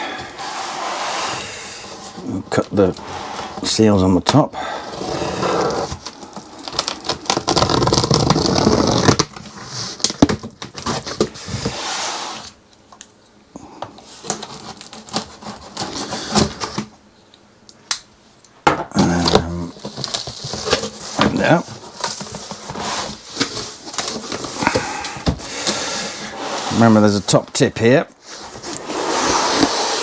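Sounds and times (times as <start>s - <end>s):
knife scraping through packing tape: 6.8s - 10.0s, 28.2s - 30.0s.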